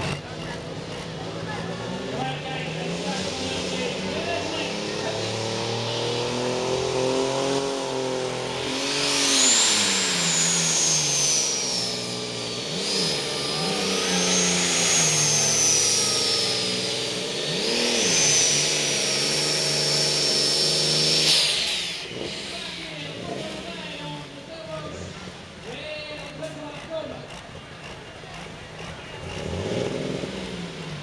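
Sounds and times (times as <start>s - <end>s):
tractor engine at full power: 0.0s - 31.0s
high wavering whine: 8.4s - 23.5s.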